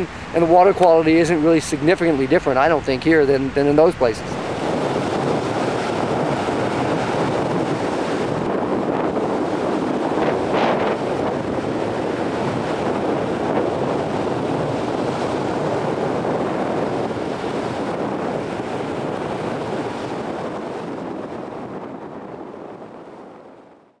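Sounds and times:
choppy surf: 0.0s - 23.4s
wind buffeting microphone: 0.0s - 23.8s.

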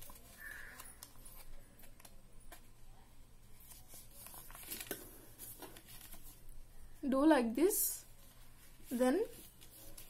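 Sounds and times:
paper being folded and creased: 0.0s - 2.6s, 3.6s - 6.4s, 8.2s - 10.0s.

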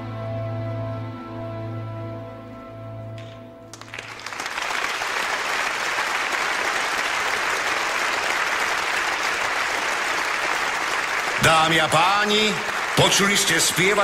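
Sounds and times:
audience applauding: 3.2s - 14.0s.

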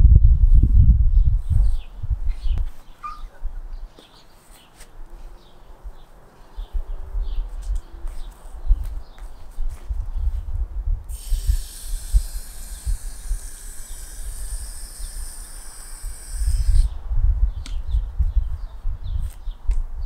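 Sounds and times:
wind rumbling on microphone: 0.0s - 4.0s, 4.9s - 20.0s
hose nozzle spraying water: 11.1s - 16.9s.

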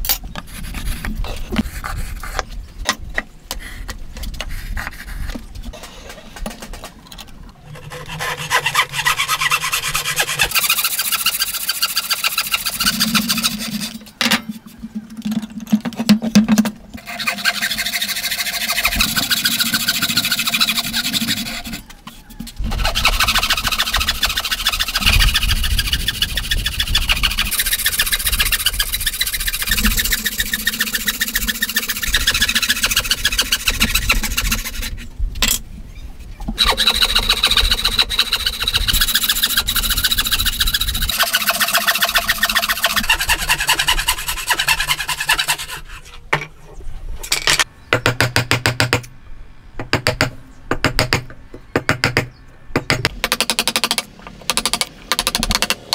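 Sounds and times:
hand saw cutting timber: 7.7s - 14.2s, 17.0s - 21.8s, 22.6s - 35.0s, 36.6s - 46.2s.

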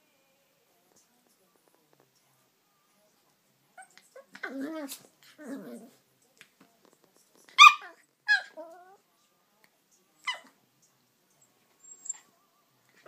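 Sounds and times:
dogs yipping: 7.6s - 8.9s.

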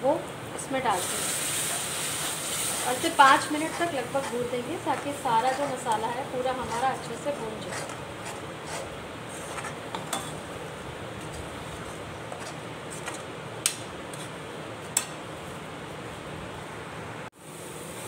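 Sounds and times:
frying sizzle: 0.0s - 16.6s, 17.4s - 18.0s
spatula scraping paste in pan: 2.6s - 10.5s, 11.3s - 13.2s, 14.1s - 14.4s.

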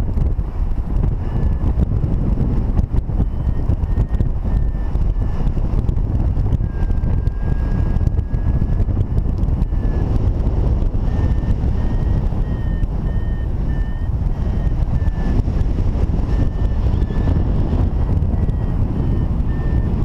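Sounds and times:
wind buffeting microphone: 0.0s - 20.0s
variometer tone and beeps: 1.0s - 20.0s.

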